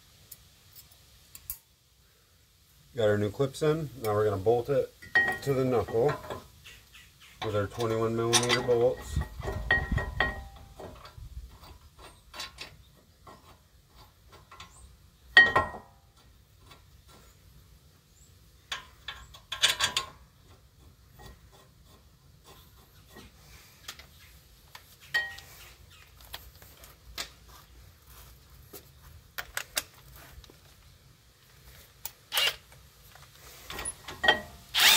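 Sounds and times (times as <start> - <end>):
metallic clinks and knocks: 7.4 - 14.8, 18.7 - 20.2, 25.1 - 25.5.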